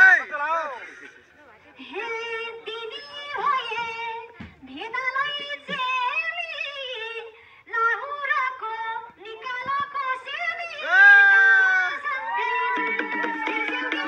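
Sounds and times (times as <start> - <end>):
woman singing a folk tune: 1.8 - 10.8.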